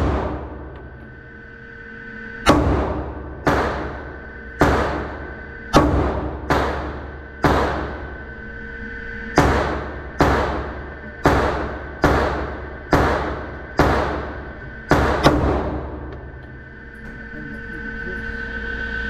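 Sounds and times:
pistol shots echoing indoors: 0:00.0 - 0:01.0, 0:02.4 - 0:16.4.

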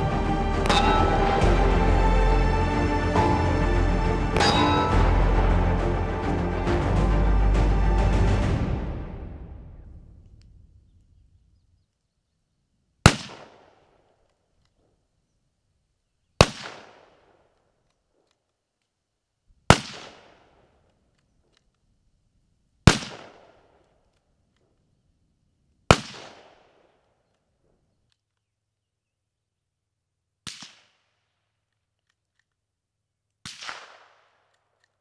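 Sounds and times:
rifle shots with echo: 0:13.0 - 0:14.0, 0:16.4 - 0:17.4, 0:19.7 - 0:20.6, 0:22.8 - 0:23.8, 0:25.9 - 0:27.0, 0:33.4 - 0:34.6.

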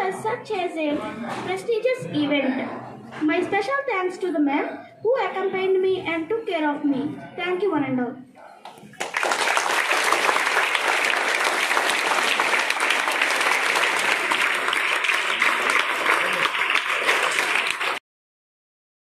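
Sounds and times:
children clapping: 0:08.6 - 0:18.0.

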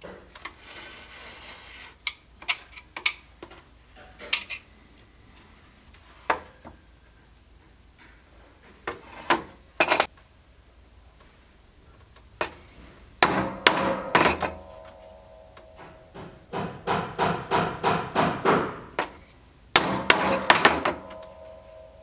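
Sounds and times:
steel tools knocking on workbench: 0:13.2 - 0:18.7, 0:19.8 - 0:21.8.

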